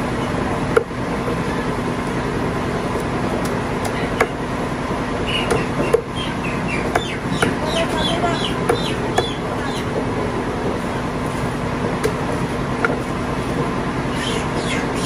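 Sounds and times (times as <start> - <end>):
steady background hum: 0.0 - 15.0
cleaver chopping on wooden block: 5.4 - 6.1, 6.9 - 7.6, 8.6 - 9.4.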